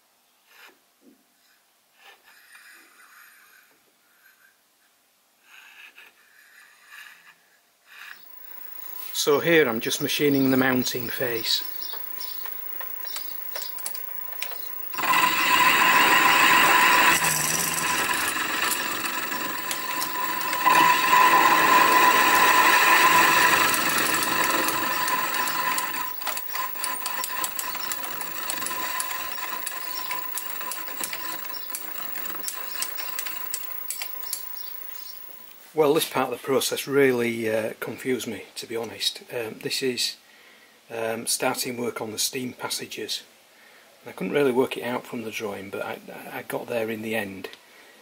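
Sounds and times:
milling machine whine and grinding: 0:08.2 - 0:35.6.

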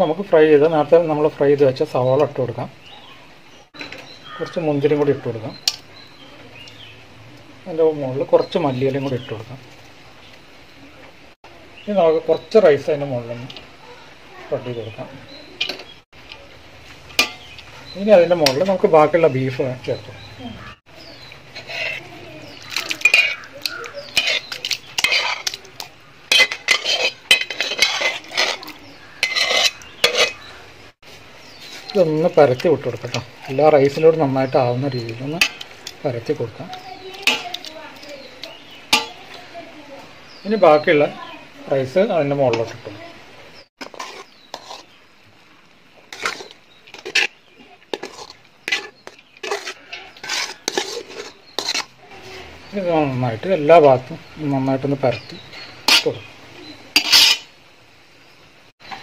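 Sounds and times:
metal spoon scraping a pot: 0:17.1 - 0:18.8, 0:21.5 - 0:30.6, 0:31.6 - 0:39.4, 0:43.8 - 0:45.0, 0:46.0 - 0:52.6, 0:55.2 - 0:56.3, 0:56.9 - 0:57.6.

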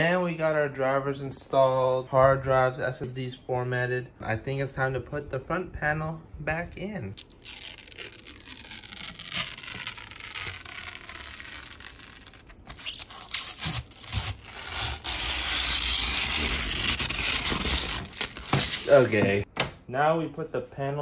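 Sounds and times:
plastic film peeling off: 0:07.2 - 0:19.4.

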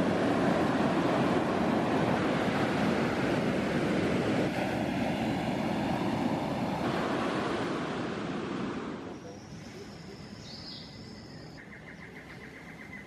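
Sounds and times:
ocean surf breaking on beach: 0:00.0 - 0:10.0.

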